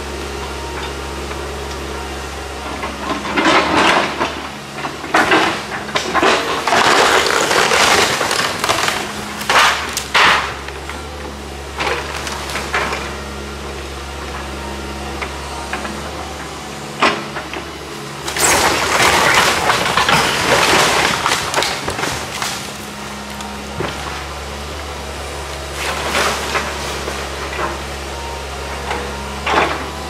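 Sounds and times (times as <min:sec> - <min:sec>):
diesel excavator engine running: 0:00.0 - 0:30.0
debris crunching and breaking: 0:03.3 - 0:11.0, 0:11.8 - 0:13.1, 0:18.1 - 0:24.6, 0:25.6 - 0:27.8
wood splintering and cracking: 0:03.3 - 0:11.1, 0:11.7 - 0:13.1, 0:17.0 - 0:24.4, 0:25.6 - 0:27.8.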